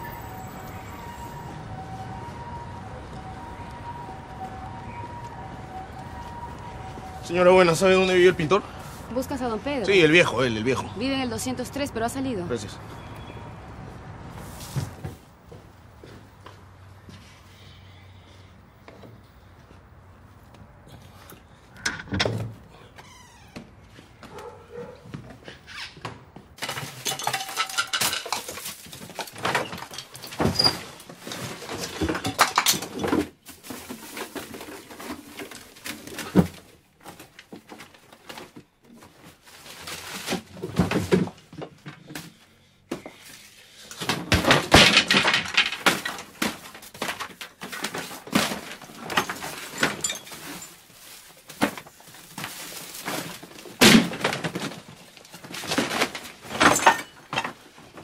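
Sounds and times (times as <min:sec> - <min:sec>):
rummaging through wooden drawer: 0:26.6 - 0:42.1, 0:44.0 - 0:58.0.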